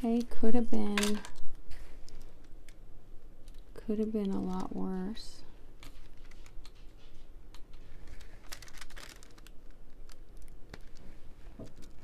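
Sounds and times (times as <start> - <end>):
plastic film crinkling: 5.8 - 12.0.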